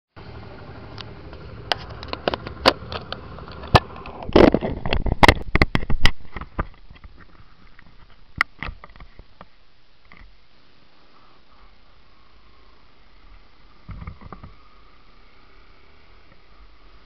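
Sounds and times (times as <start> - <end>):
motorcycle engine running: 0.2 - 4.2.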